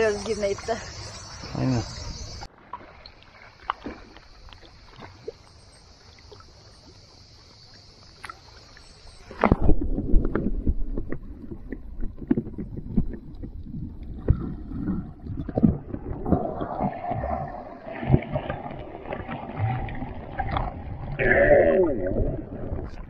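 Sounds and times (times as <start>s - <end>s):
water hissing and lapping: 0.0s - 23.0s
muffled underwater rumble: 9.1s - 23.0s.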